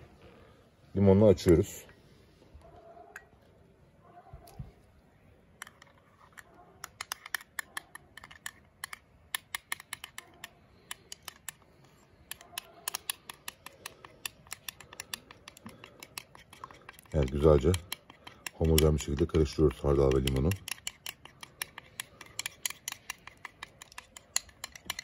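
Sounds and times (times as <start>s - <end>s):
metal spoon clicking in porcelain bowl: 12.3s - 19.4s, 20.0s - 25.0s.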